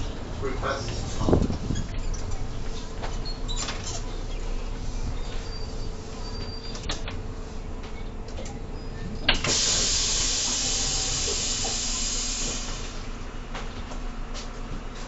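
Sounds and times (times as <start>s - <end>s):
bus engine rumble: 0.0s - 15.0s
compressed air hiss: 9.4s - 13.0s.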